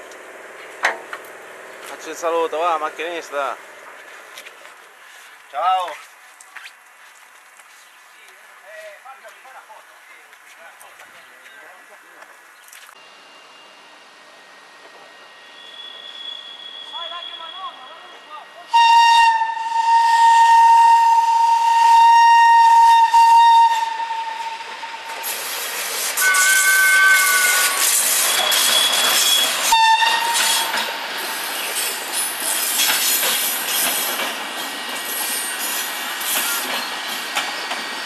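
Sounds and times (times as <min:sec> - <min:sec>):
train wheels rolling on rails: 0:13.9 - 0:17.4, 0:21.3 - 0:38.0
locomotive horn blasts: 0:18.7 - 0:25.1, 0:26.2 - 0:30.8.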